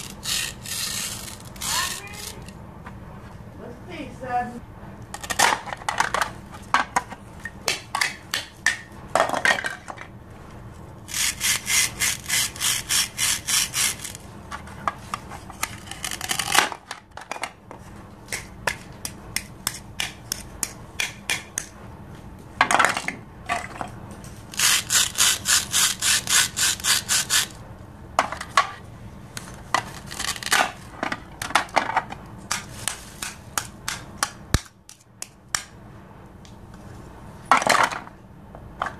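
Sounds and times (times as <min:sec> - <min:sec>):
plastic knife sawing: 0:11.1 - 0:14.2, 0:24.6 - 0:27.6.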